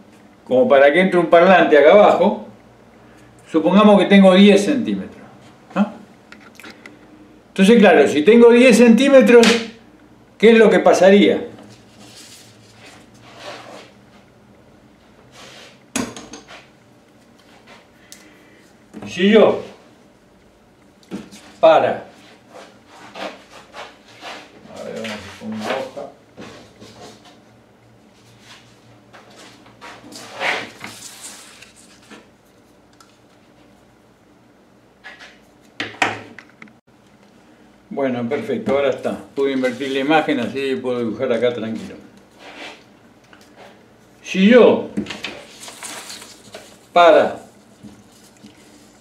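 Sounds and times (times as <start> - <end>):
paper rustling: 30.0 - 32.7, 45.2 - 46.9.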